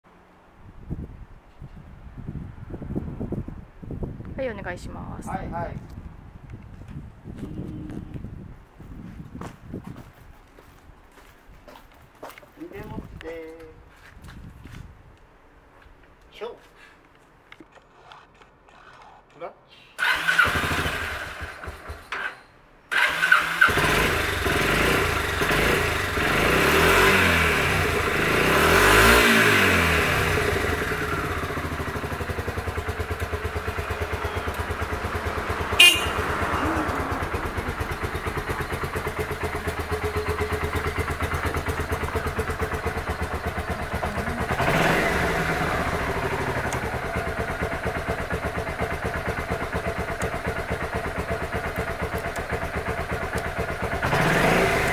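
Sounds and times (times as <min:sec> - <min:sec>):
motorcycle engine starting and idling: 0:20.0 - 0:54.9.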